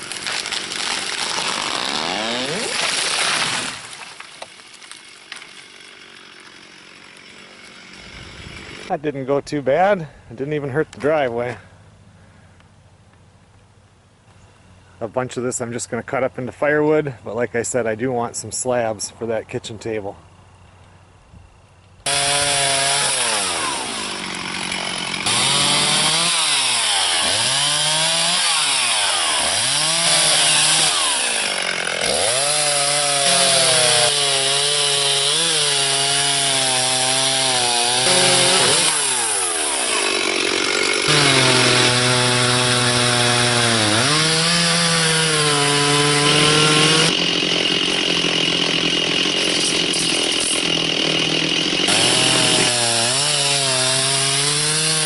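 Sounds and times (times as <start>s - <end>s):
chainsaw cutting wood: 0.0s - 8.9s, 22.0s - 55.0s.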